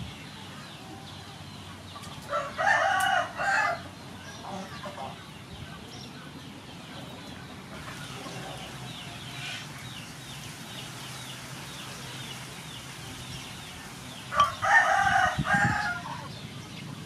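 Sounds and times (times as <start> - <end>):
rooster crowing: 2.3 - 3.9, 14.3 - 16.3.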